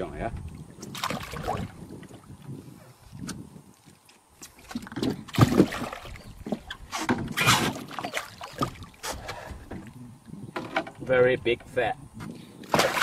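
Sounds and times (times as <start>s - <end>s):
fish thrashing and splashing: 0.8s - 1.8s, 4.5s - 6.8s, 7.4s - 9.9s, 12.7s - 13.0s.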